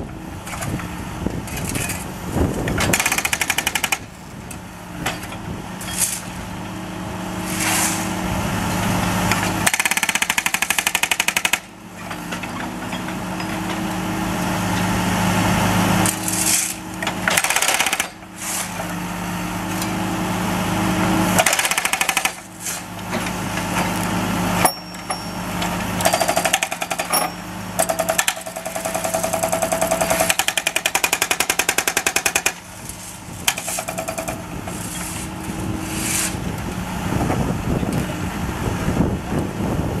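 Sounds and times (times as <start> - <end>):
jackhammer breaking asphalt: 2.6 - 4.4, 9.3 - 13.9, 16.0 - 18.3, 21.3 - 22.8, 23.9 - 35.2.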